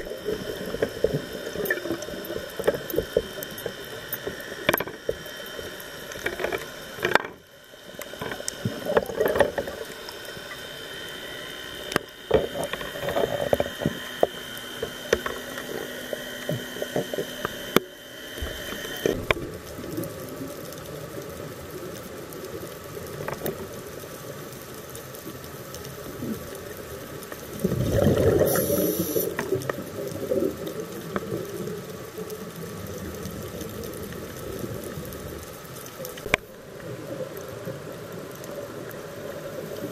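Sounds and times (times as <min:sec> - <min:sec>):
regulator air bubbling: 0:27.5 - 0:29.5
underwater rushing hiss: 0:27.5 - 0:30.6.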